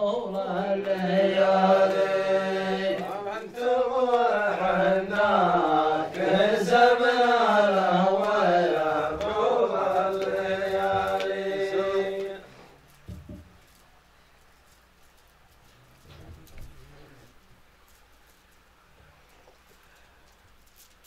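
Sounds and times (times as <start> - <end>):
man chanting: 0.0 - 12.5.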